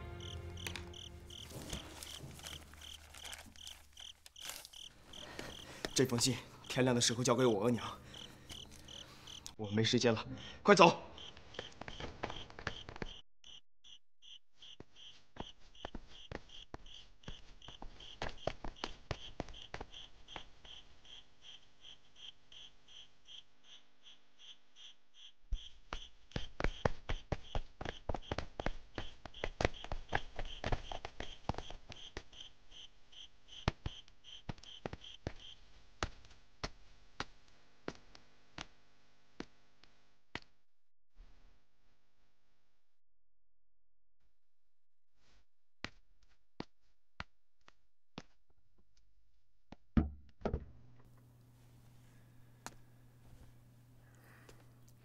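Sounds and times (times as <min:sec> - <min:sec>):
crickets chirping: 0:00.0 - 0:09.6, 0:11.2 - 0:15.1, 0:19.2 - 0:25.7.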